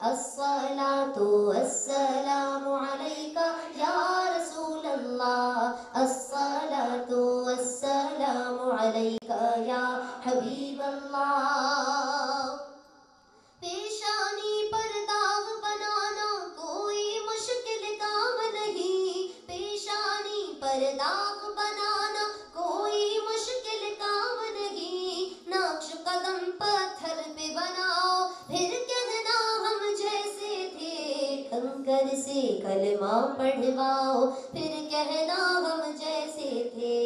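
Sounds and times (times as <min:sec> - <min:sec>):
woman singing unaccompanied: 0:00.0 - 0:12.8, 0:13.6 - 0:37.0.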